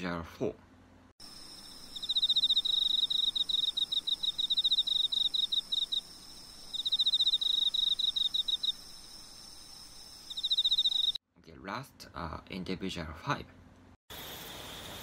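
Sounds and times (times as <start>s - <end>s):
cricket chirping: 1.2s - 11.2s.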